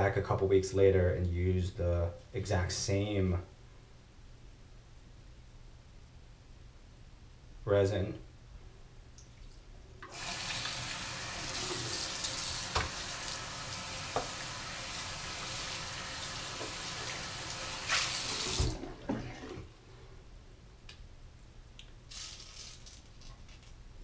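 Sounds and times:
tap water splashing: 11.5 - 13.1, 14.1 - 14.4, 16.5 - 19.5.

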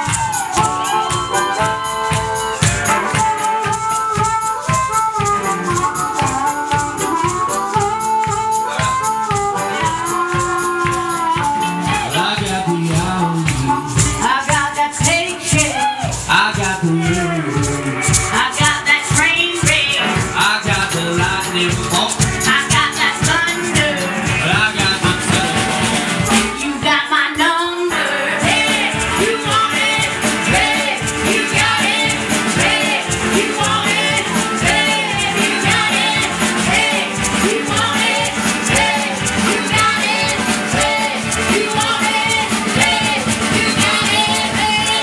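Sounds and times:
woman singing: 0.0 - 4.4, 9.5 - 17.3, 18.0 - 45.0
resonator guitar: 0.0 - 27.1, 27.9 - 45.0
banjo: 0.0 - 45.0
drums: 0.0 - 45.0.

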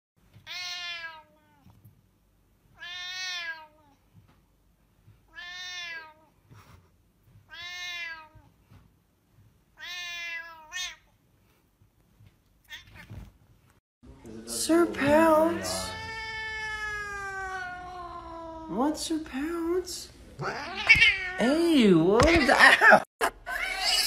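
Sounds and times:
cat meowing angrily: 0.4 - 1.6, 2.8 - 3.8, 5.3 - 6.3, 7.5 - 8.4, 9.8 - 11.1, 15.5 - 18.8, 20.4 - 21.6.

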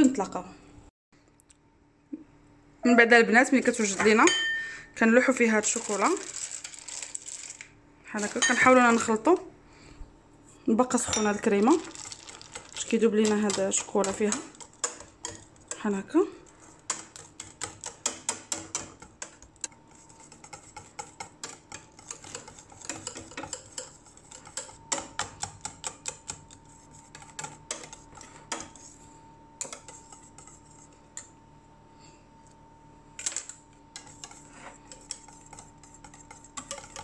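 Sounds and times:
whisk scraping a metal saucepan: 8.1 - 9.4, 11.2 - 31.3, 33.2 - 37.0.

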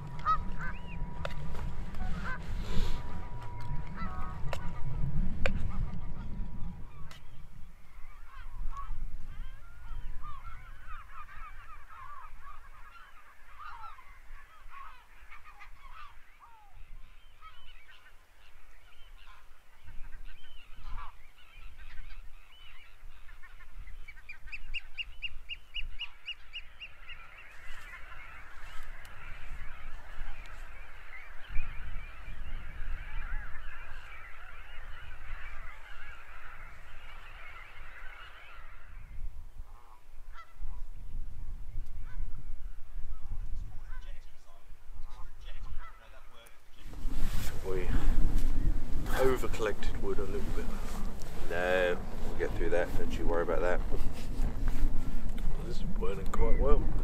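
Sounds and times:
bird trilling: 0.0 - 4.8
geese honking: 0.0 - 7.2, 7.8 - 25.1, 25.8 - 40.8, 43.8 - 57.0
wind rumbling on microphone: 0.0 - 13.0, 18.8 - 46.0, 46.7 - 57.0.

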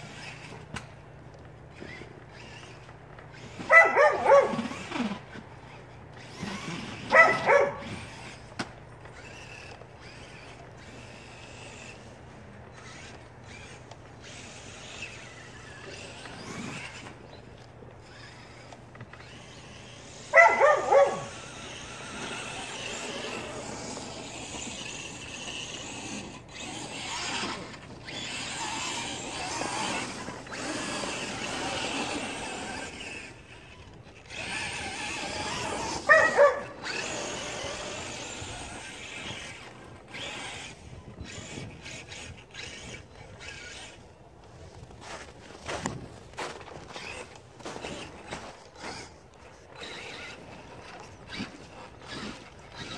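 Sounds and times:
dog barking: 3.7 - 4.6, 7.1 - 7.9, 20.3 - 21.3, 36.1 - 36.8.

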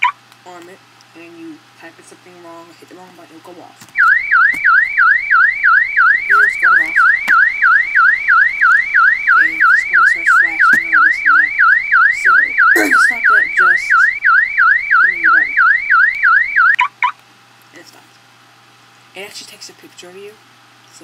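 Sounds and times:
warbling car alarm siren: 4.0 - 17.2.

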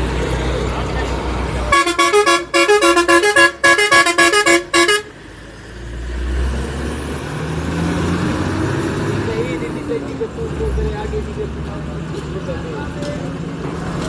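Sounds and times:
vehicle musical horn tune: 1.7 - 5.1.

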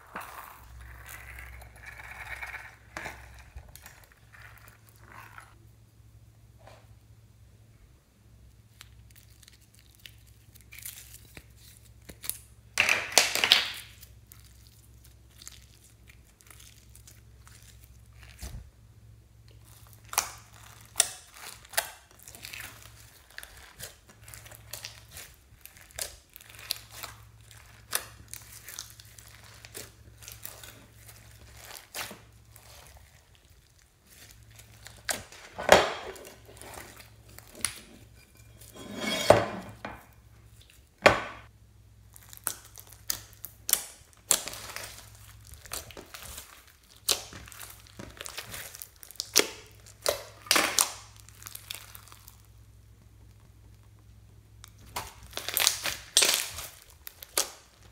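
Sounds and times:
slime crackling and popping: 8.8 - 18.6, 19.5 - 37.8, 42.0 - 57.9.

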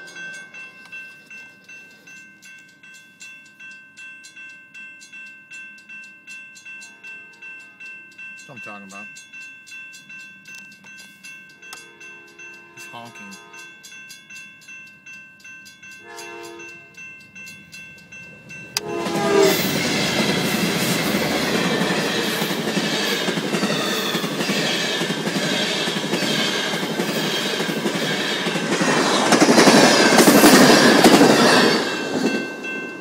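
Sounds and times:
level crossing bell ringing: 0.0 - 27.0, 29.6 - 33.0
passing train rumble: 6.0 - 33.0
train wheel clatter: 9.2 - 33.0
train horn blast: 11.7 - 13.7, 16.0 - 16.9, 18.8 - 19.7.

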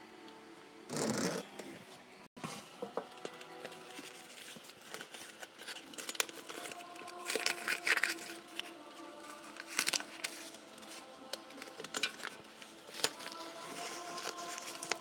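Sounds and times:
paper rustling and scraping: 3.7 - 15.0.

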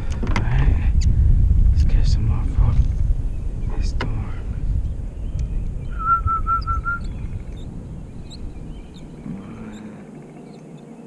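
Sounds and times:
wind buffeting microphone: 0.0 - 11.0
faint bird chirps: 4.8 - 11.0
bird whistling notes: 5.2 - 10.8.

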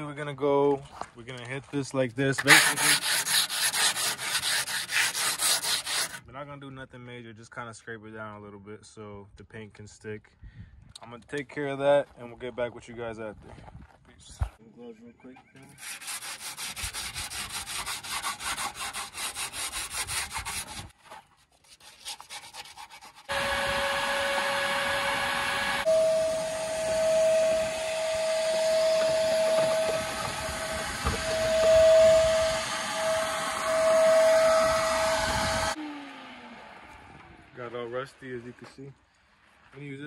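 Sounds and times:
scraping steel by hand: 2.4 - 6.2, 15.6 - 23.3
shop vacuum whining: 23.3 - 38.0.

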